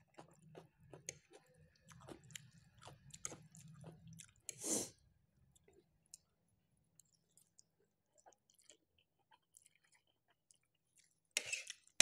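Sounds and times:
chewing and wet mouth clicks: 0.0 - 4.6, 7.0 - 12.0.

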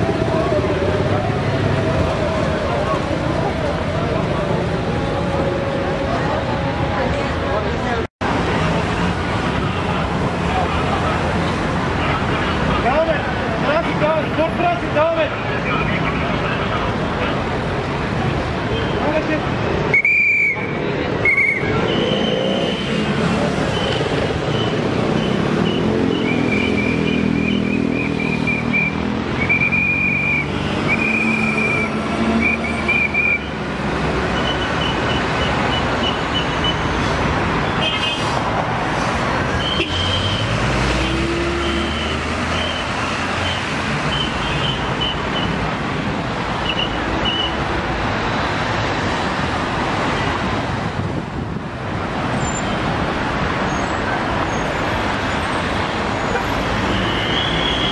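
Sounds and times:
busy street traffic: 0.0 - 57.9
vehicle engine: 21.4 - 57.9.

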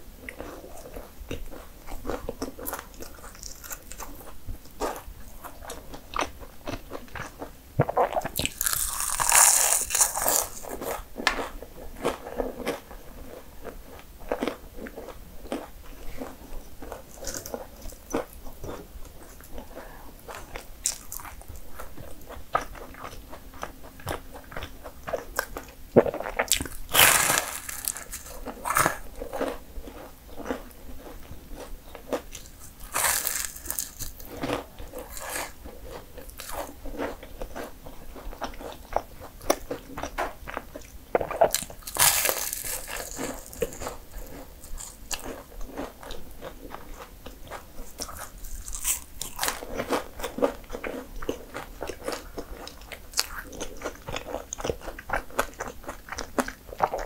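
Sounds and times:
person chewing: 0.2 - 57.0
crisp pastry crunches: 2.1 - 4.2, 8.3 - 12.8, 26.4 - 37.7, 41.2 - 57.0.

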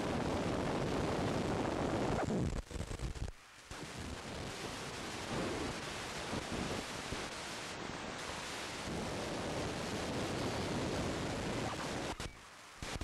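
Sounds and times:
wind buffeting microphone: 3.8 - 12.3.

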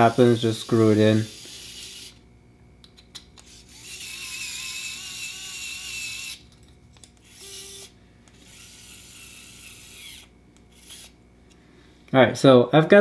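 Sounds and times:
screwdriver motor whining: 0.0 - 2.2, 3.4 - 11.2.

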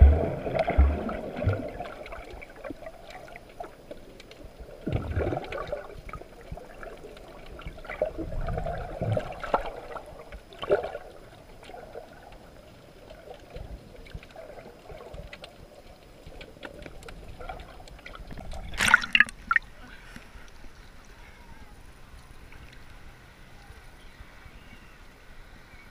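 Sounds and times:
muffled underwater water movement: 0.0 - 25.9
water swishes: 0.0 - 25.9
faint clicks: 2.2 - 4.9, 11.5 - 23.9.

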